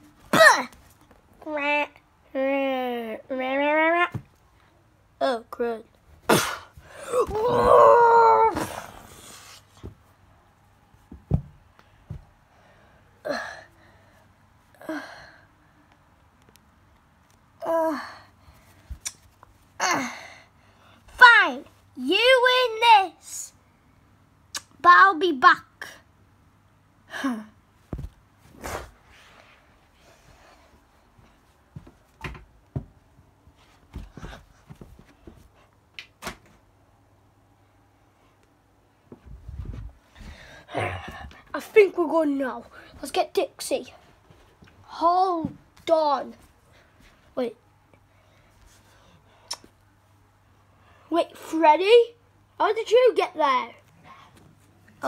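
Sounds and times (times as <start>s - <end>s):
soft handling thumps: 27.8s - 28.6s
plush toys rustling on carpet: 39.1s - 41.4s.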